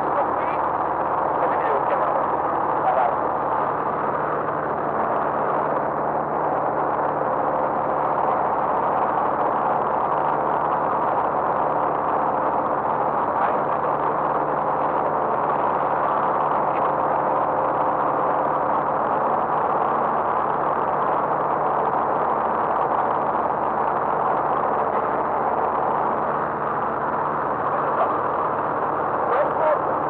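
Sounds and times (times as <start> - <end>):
light aircraft engine droning: 0.0 - 30.0.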